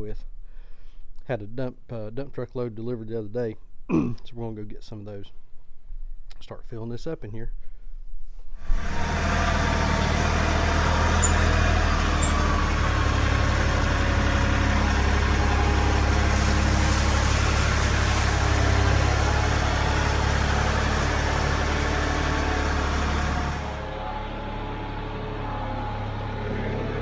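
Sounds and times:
tractor engine running: 0:08.7 - 0:27.0.

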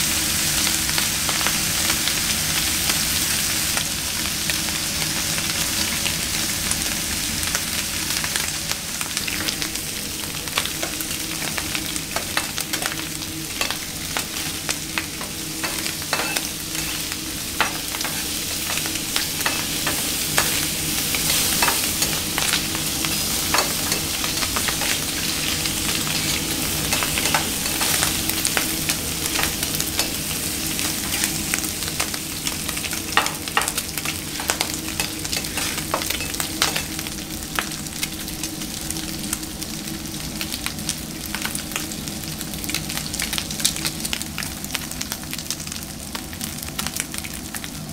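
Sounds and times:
bacon sizzling on a griddle: 0:00.0 - 0:47.9
steady low hum: 0:09.1 - 0:37.8
metal spatula scraping: 0:13.6 - 0:31.5, 0:34.4 - 0:37.0.

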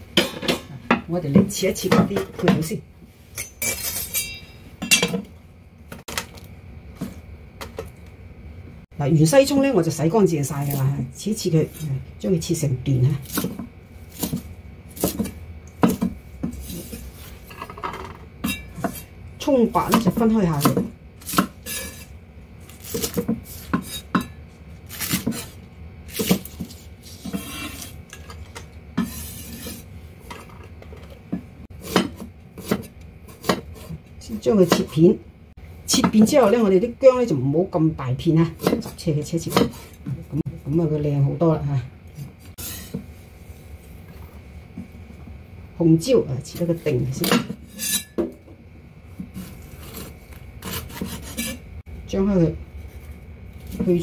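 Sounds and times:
metallic clink: 0:03.4 - 0:05.1
blade scraping across board: 0:27.0 - 0:28.0, 0:42.6 - 0:43.0, 0:49.4 - 0:51.6.

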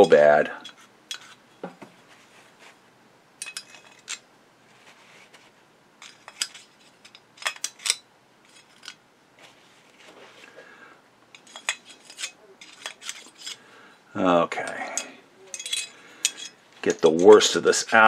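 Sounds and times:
screwdriver scraping and clicking: 0:00.6 - 0:01.4, 0:03.4 - 0:04.2, 0:06.0 - 0:09.0, 0:11.4 - 0:13.6.

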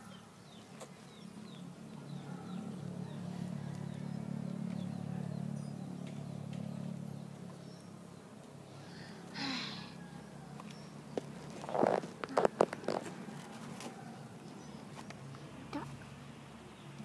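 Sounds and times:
bird chirping: 0:00.0 - 0:09.2, 0:10.0 - 0:13.0
vehicle passing by: 0:00.9 - 0:12.2.

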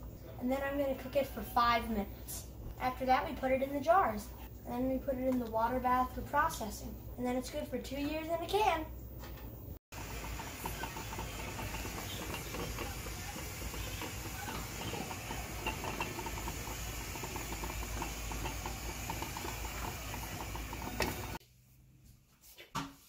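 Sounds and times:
spatula stirring thick jam: 0:10.0 - 0:21.4.

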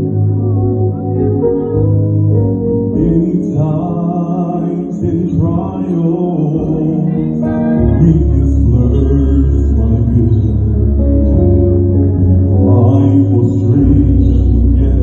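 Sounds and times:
deep bass note: 0:00.0 - 0:15.0
sustained low accompaniment notes: 0:00.0 - 0:15.0
man singing through microphone: 0:02.9 - 0:11.6, 0:12.4 - 0:15.0.

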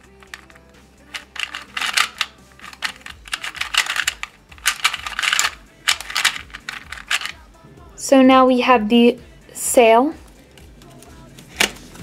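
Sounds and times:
plastic puzzle cube clicking: 0:00.1 - 0:07.4.

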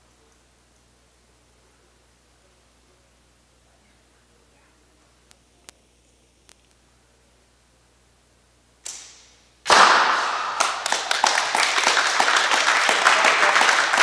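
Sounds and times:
group clapping and applause: 0:09.7 - 0:14.0.

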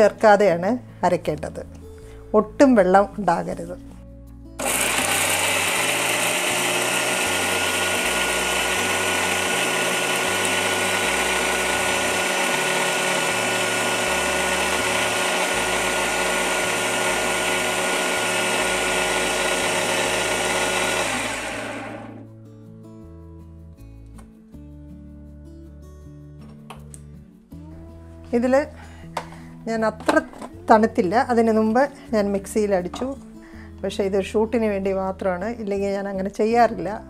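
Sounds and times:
mixer grinder whirring: 0:04.6 - 0:22.2.

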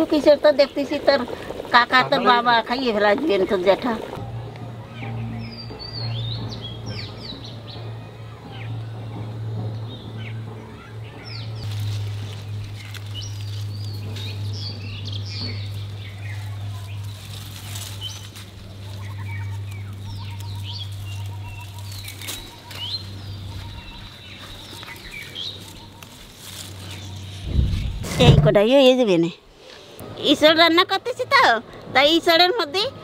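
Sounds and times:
steady low hum: 0:04.0 - 0:28.8
small birds chirping: 0:04.8 - 0:28.6.

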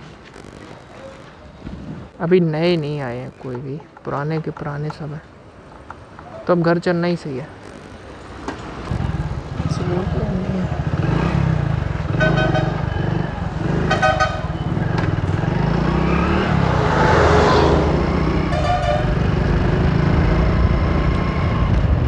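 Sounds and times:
traffic rumble: 0:00.0 - 0:22.0
vehicle passing: 0:07.5 - 0:22.0
vehicle horns tooting: 0:12.1 - 0:14.9, 0:18.4 - 0:19.4.

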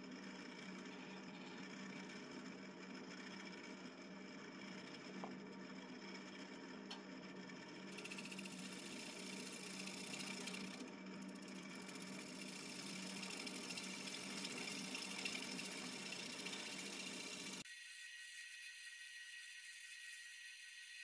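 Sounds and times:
lathe motor humming: 0:07.3 - 0:17.6
tool scraping spinning wood: 0:07.5 - 0:21.0.

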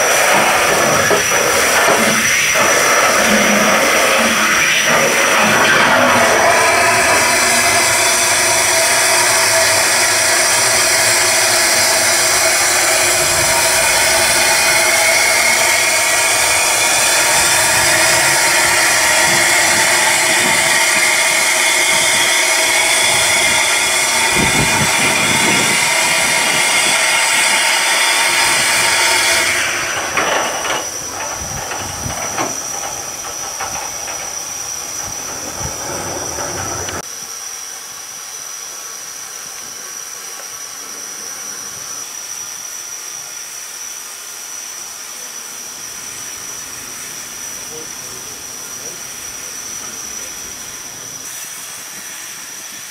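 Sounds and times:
steam locomotive hissing: 0:00.0 - 0:52.9
thin high whistle: 0:06.0 - 0:31.0.

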